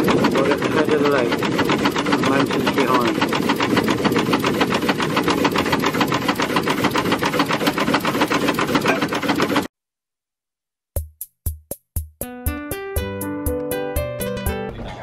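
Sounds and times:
steam engine running: 0.0 - 9.7
plucked string and piano music: 12.2 - 15.0.

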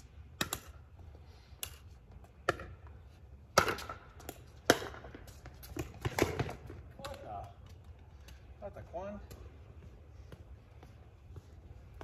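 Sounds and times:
paddles hitting plastic ball: 0.3 - 0.9, 3.5 - 8.6.

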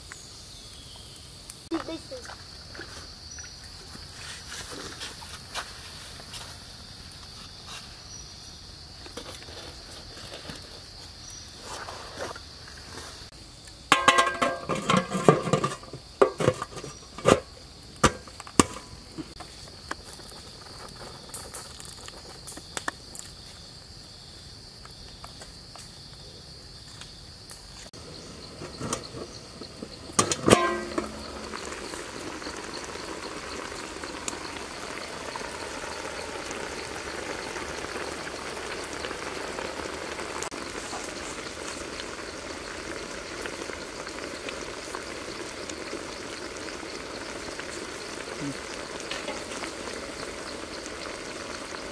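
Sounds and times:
liquid bubbling at a boil: 0.1 - 23.4, 27.9 - 51.9
metal pot and lid clanking: 13.9 - 18.9, 28.6 - 29.4, 30.1 - 32.0
insect buzzing: 28.0 - 51.9.

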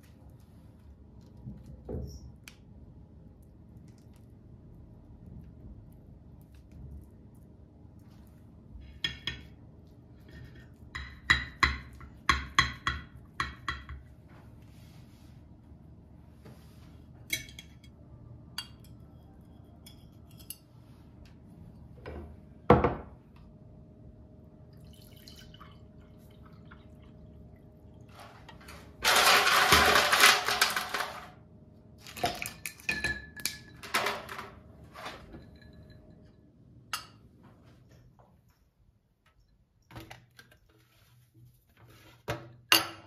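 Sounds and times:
juice pouring into a glass: 24.8 - 27.1.

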